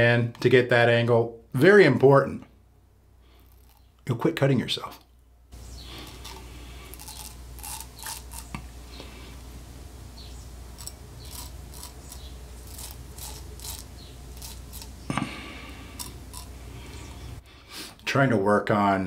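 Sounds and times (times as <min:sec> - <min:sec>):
razor scraping stubble: 0:03.4 - 0:03.9, 0:05.6 - 0:09.3, 0:10.2 - 0:17.4.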